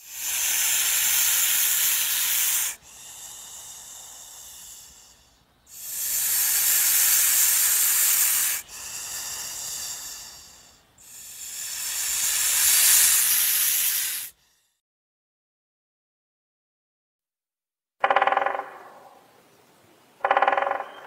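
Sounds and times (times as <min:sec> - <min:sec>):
repeating hissing: 0:00.0 - 0:14.6.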